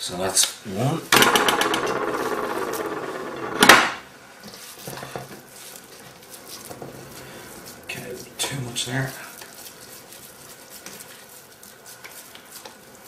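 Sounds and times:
hands mixing meat in bowl: 0:04.4 - 0:13.0.

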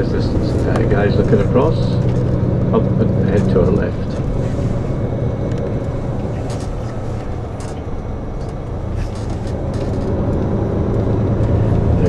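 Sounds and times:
coach engine drone: 0:00.0 - 0:12.0
road noise: 0:00.0 - 0:12.0.

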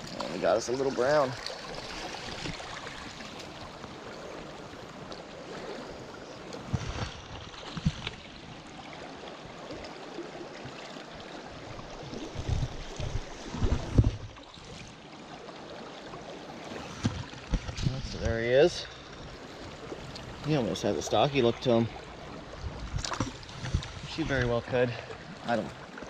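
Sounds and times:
stream running over rocks: 0:00.0 - 0:26.0.

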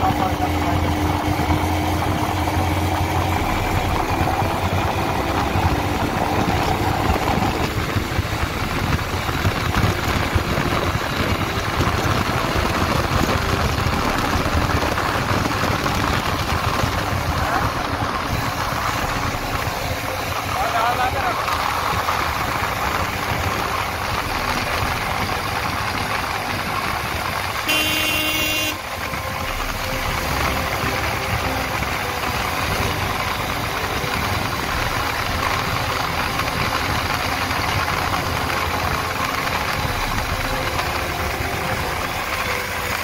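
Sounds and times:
wind noise: 0:00.0 - 0:20.6, 0:21.2 - 0:43.0
motorcycle engine running: 0:00.0 - 0:43.0
vehicle horn: 0:27.5 - 0:30.1.

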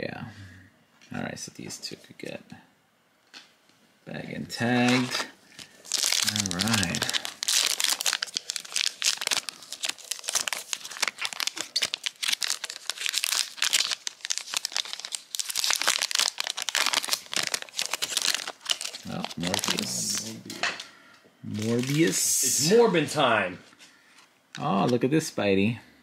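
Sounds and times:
foil wrapper crinkling: 0:04.8 - 0:20.3, 0:21.5 - 0:22.6
foil wrapper tearing: 0:04.8 - 0:20.3, 0:21.5 - 0:22.5.

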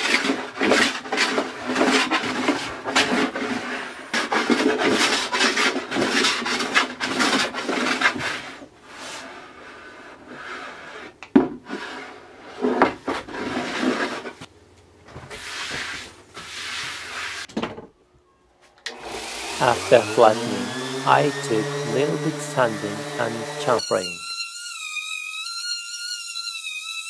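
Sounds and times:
hand plane shaving wood: 0:00.0 - 0:14.4, 0:18.9 - 0:24.2.

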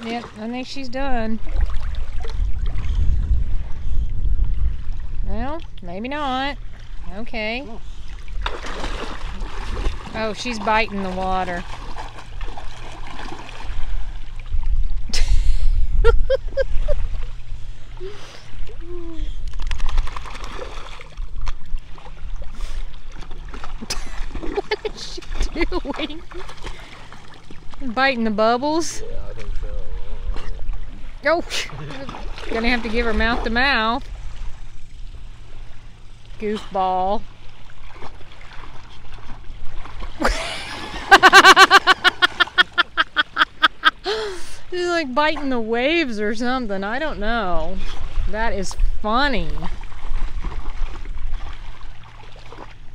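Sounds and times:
steady low rumble: 0:00.3 - 0:19.9, 0:23.8 - 0:52.0
water splashing around dog: 0:07.0 - 0:14.8, 0:19.5 - 0:27.8, 0:29.3 - 0:34.0, 0:37.1 - 0:42.4, 0:49.2 - 0:52.9
hearty laughter: 0:15.1 - 0:17.1, 0:40.2 - 0:44.2.

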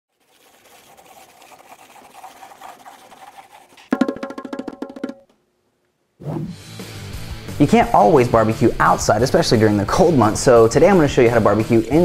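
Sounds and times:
pencil scribbling: 0:00.1 - 0:03.9.

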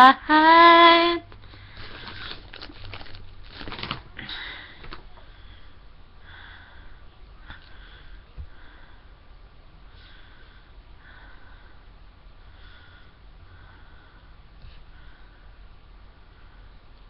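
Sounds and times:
breathing and sniffing: 0:01.4 - 0:03.0.

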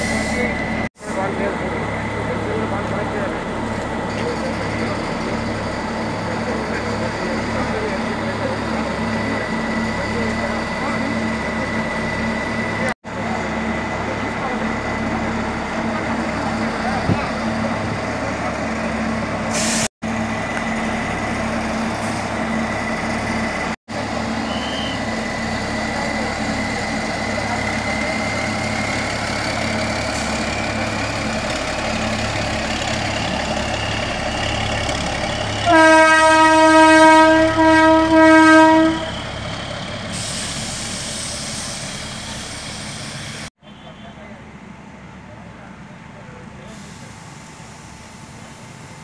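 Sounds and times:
diesel rail car running: 0:00.0 - 0:49.0
train horn blasts: 0:35.6 - 0:39.2.

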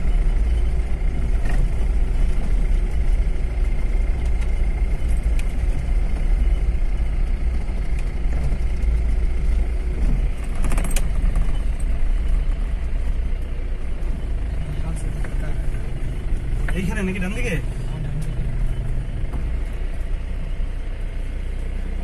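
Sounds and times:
car engine and tyre rumble: 0:00.0 - 0:22.0
rattling: 0:00.1 - 0:12.3.

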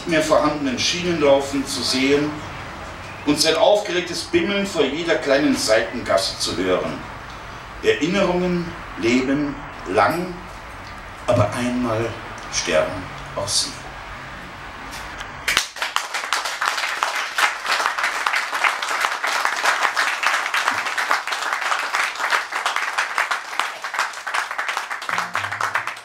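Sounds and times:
audience applauding: 0:15.5 - 0:26.0.

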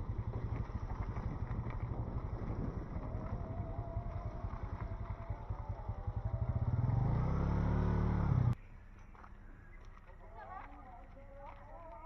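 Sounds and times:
vehicle engine running: 0:00.0 - 0:08.6.

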